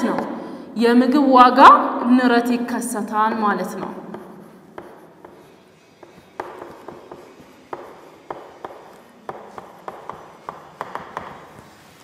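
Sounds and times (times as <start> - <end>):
sharp taps writing on board: 3.8 - 11.8.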